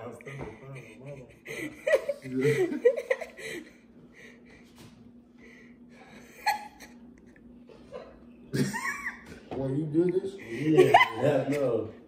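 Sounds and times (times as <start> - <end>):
low steady hum: 0.0 - 12.0
faint breathing: 3.3 - 6.4.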